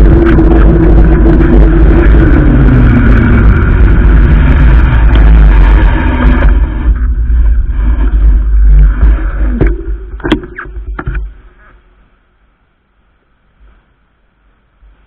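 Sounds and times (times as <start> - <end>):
wind buffeting microphone: 0.0 - 11.6
tyre rumble: 0.0 - 12.0.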